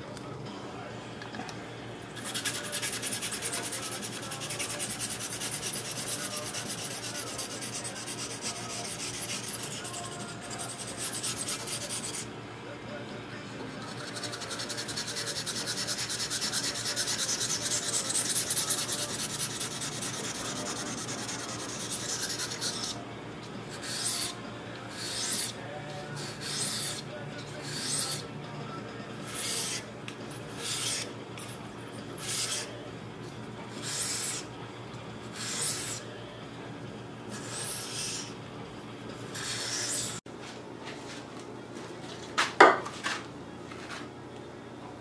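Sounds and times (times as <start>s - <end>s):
knife sharpening on whetstone: 2.2s - 12.3s, 13.9s - 23.0s, 23.7s - 25.6s, 26.2s - 27.0s, 27.6s - 28.3s, 29.2s - 29.8s, 30.5s - 31.5s, 32.2s - 32.7s, 33.8s - 34.5s, 35.4s - 36.0s, 37.3s - 38.3s, 39.4s - 40.2s.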